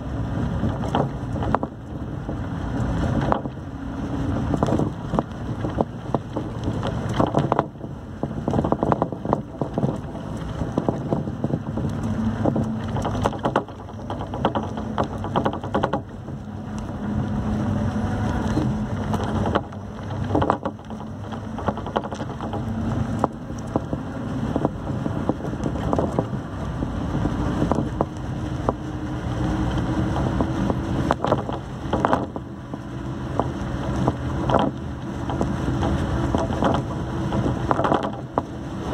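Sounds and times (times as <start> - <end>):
knocks and rattles: 0.0 - 3.7, 4.3 - 17.3, 18.2 - 38.9
road noise: 0.0 - 38.9
vehicle engine running: 0.0 - 38.9
wind noise: 0.0 - 38.9.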